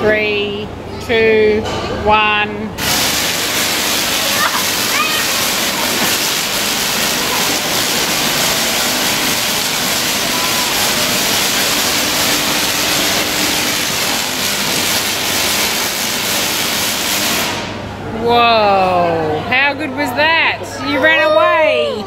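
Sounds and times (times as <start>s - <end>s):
electric arcs crackling: 2.8s - 17.8s.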